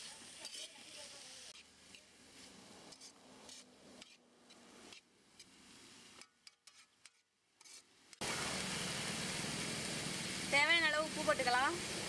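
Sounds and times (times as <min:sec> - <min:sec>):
metal spoon scraping in a pan: 0:00.0 - 0:08.2.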